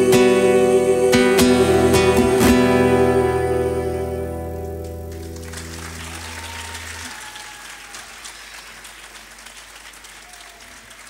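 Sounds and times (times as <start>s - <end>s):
acoustic guitar chord ringing: 0.0s - 6.2s
audience applause: 4.8s - 11.0s.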